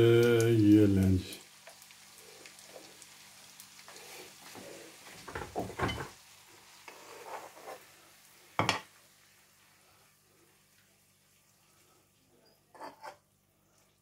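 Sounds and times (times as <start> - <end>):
pasta scraping against pan: 6.8 - 8.0.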